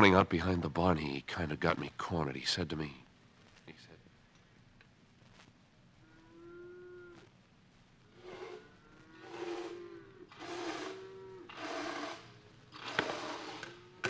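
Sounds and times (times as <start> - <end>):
cattle mooing: 8.2 - 12.2.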